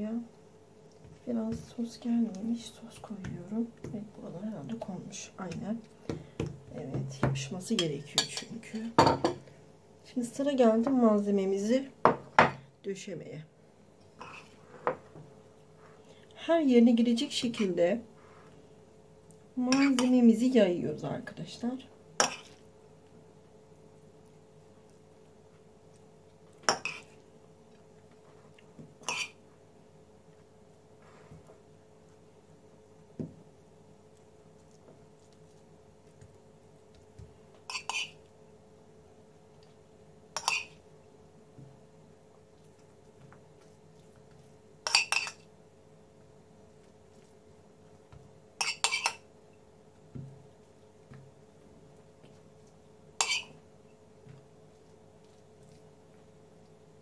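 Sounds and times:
cutlery clinking on porcelain plate: 44.9s - 45.4s, 48.6s - 49.2s.

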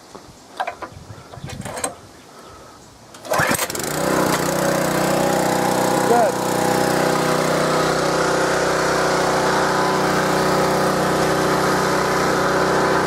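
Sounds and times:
pressure washer engine running: 3.2s - 13.0s.

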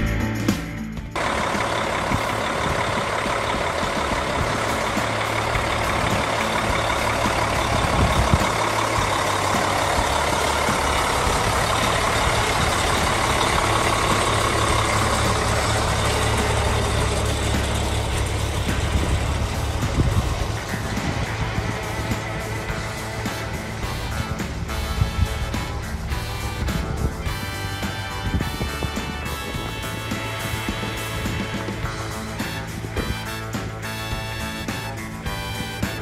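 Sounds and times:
diesel truck engine idling: 1.2s - 36.0s.

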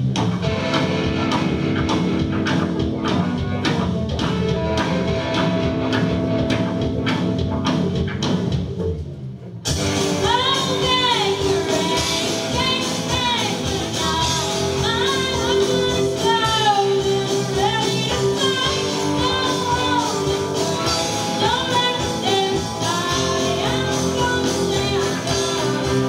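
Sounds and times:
drums: 0.0s - 26.0s
strummed guitars: 0.0s - 26.0s
person singing: 10.0s - 26.0s.

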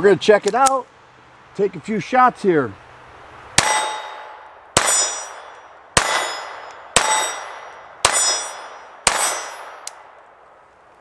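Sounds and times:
steel plate target ringing: 3.6s - 9.9s
pistol shots: 3.6s - 10.1s.

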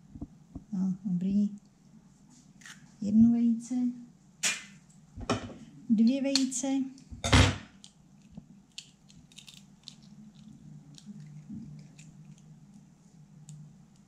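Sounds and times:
low steady hum: 0.0s - 14.0s
eggshell crackling and clicking: 7.8s - 14.0s.

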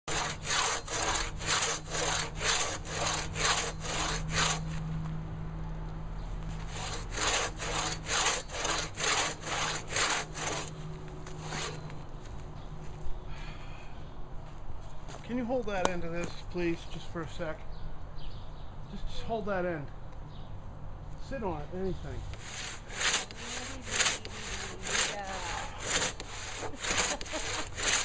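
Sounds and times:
hand saw cutting timber: 0.0s - 4.8s, 6.6s - 12.0s, 22.3s - 28.0s.

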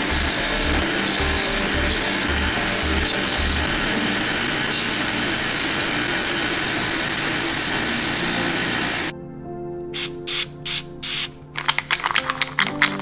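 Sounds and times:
wire wheel grinding metal: 0.0s - 9.1s
background music: 0.0s - 13.0s.

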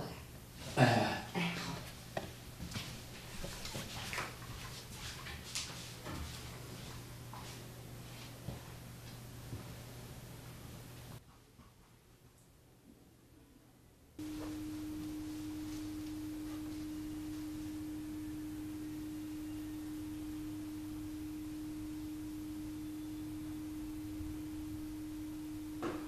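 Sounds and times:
faint room noise: 0.0s - 26.0s
steady low hum: 14.0s - 26.0s.

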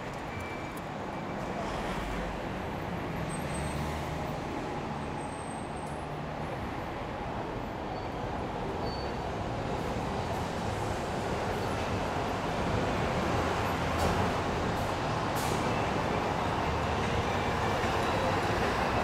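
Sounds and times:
road traffic noise: 0.0s - 19.0s.

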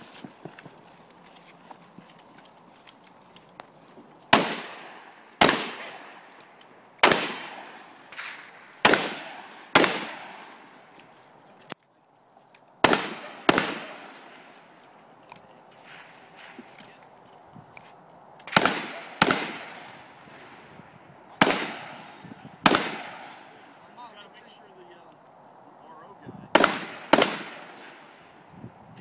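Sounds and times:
pistol shots with echo: 4.3s - 6.4s, 7.0s - 10.8s, 12.8s - 14.5s, 18.4s - 20.7s, 21.3s - 23.8s, 26.5s - 28.2s.

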